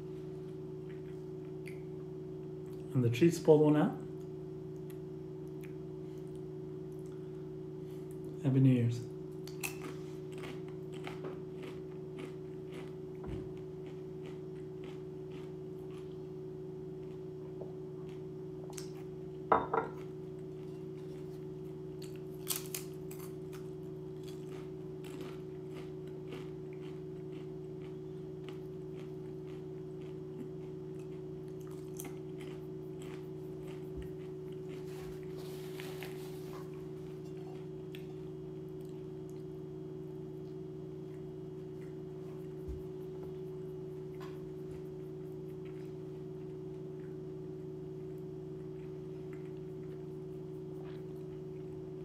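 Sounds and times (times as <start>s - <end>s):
low electrical hum: 0.0s - 52.0s
person chewing crunchy chip: 9.4s - 16.4s, 20.0s - 39.5s.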